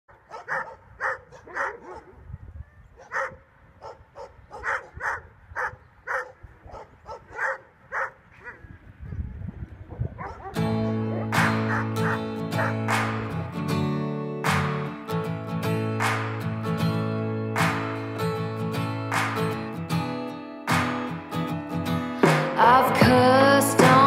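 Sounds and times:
dog barking: 0.2 - 2.2, 3.0 - 8.7, 9.9 - 12.8.

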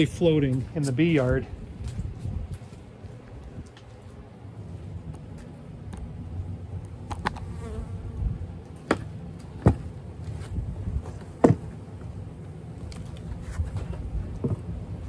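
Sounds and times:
honeybees buzzing: 0.0 - 13.4.

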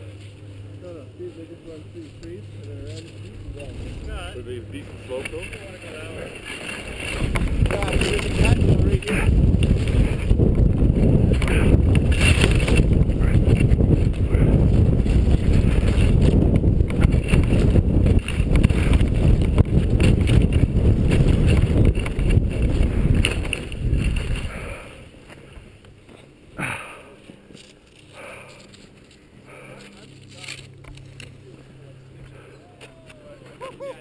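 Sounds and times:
skis scraping over snow: 2.9 - 26.3
wind buffeting microphone: 3.2 - 25.8.

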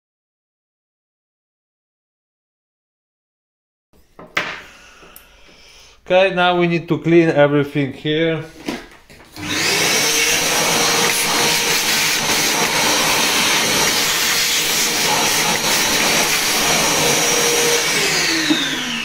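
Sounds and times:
vacuum cleaner whining: 8.6 - 19.0.

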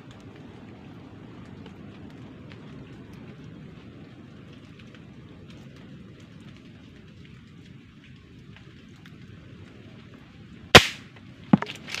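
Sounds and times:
air rifle shot crack: 10.8 - 11.1.

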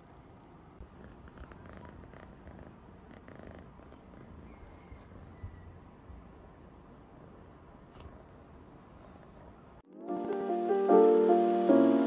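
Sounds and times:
cat purring: 0.8 - 5.4.

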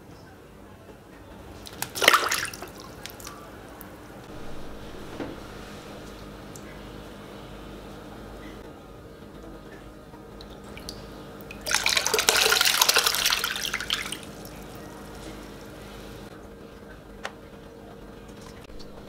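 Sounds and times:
water splashing into tub: 1.6 - 6.6, 10.4 - 15.8.

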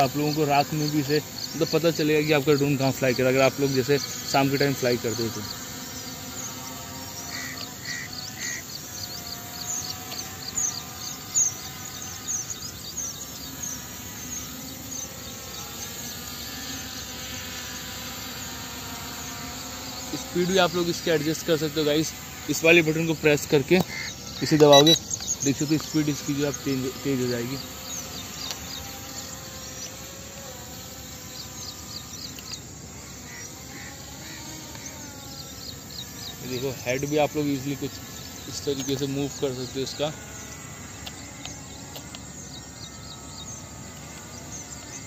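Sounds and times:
drone motors buzzing: 0.0 - 45.0
short high chirps: 24.7 - 25.0.

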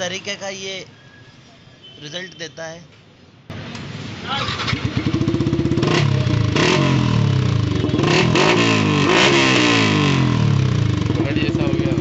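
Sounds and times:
motorcycle engine revving: 4.4 - 12.0
motorcycle engine idling: 4.6 - 6.6, 10.4 - 12.0.

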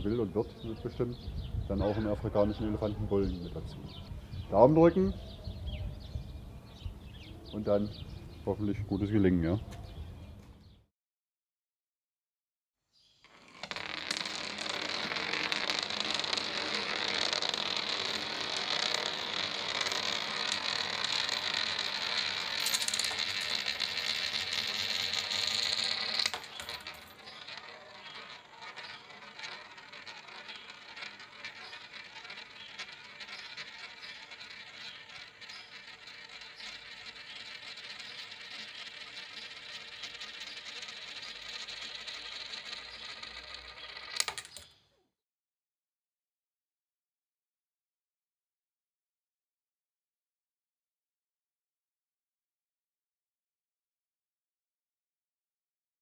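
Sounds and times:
coin rolling in a steel funnel: 13.2 - 44.8.

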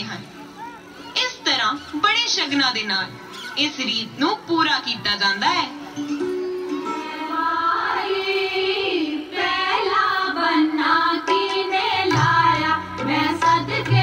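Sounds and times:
folk song singing: 6.4 - 14.0.

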